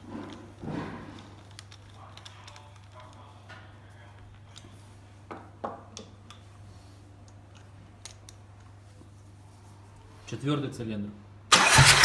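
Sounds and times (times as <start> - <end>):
rustling thump: 0.0 - 1.4.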